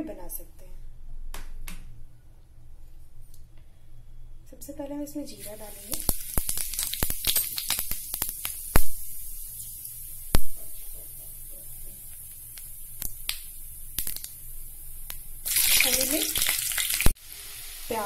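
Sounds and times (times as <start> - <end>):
seeds sizzling in hot oil: 5.3 - 18.0
seeds popping: 5.9 - 9.4, 12.1 - 14.4.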